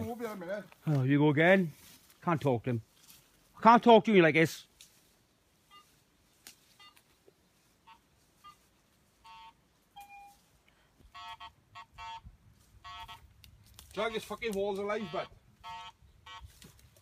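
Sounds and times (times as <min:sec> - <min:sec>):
metal detector beeps: 0:05.7 - 0:06.0, 0:06.7 - 0:07.1, 0:07.8 - 0:10.4, 0:11.1 - 0:12.2, 0:12.8 - 0:13.2, 0:15.0 - 0:16.5.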